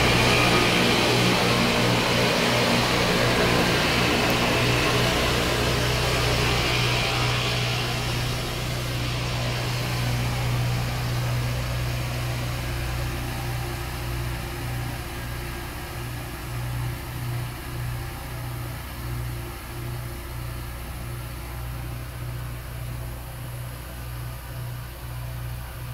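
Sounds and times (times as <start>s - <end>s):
grinding stones hissing on rails: 0.0s - 25.9s
machine engine drone: 0.0s - 25.9s.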